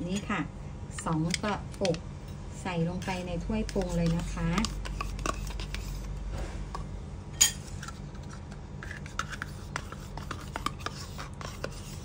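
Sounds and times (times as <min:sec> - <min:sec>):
spoon scraping yogurt cup: 0:02.9 - 0:06.8, 0:07.5 - 0:12.0.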